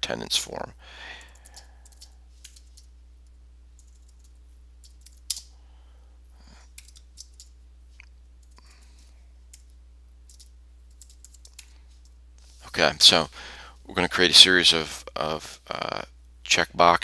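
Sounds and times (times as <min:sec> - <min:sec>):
steady low hum: 0:00.0 - 0:17.0
keyboard typing: 0:01.2 - 0:05.5, 0:06.6 - 0:07.6, 0:08.4 - 0:12.2.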